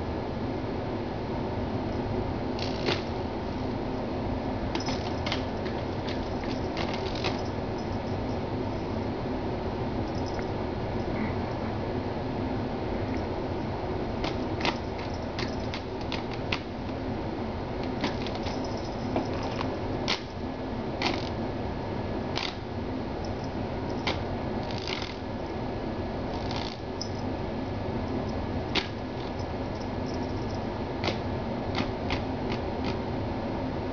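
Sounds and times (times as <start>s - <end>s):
desk fan whirring: 0.0s - 33.9s.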